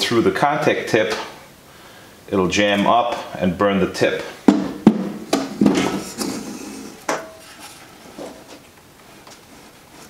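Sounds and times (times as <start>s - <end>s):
faint handling noise: 5.5s - 10.0s.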